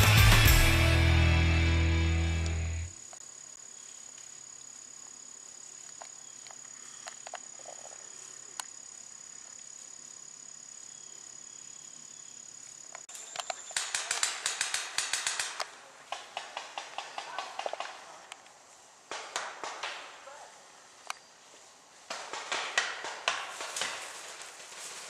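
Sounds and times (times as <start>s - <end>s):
rock music: 0.0s - 2.9s.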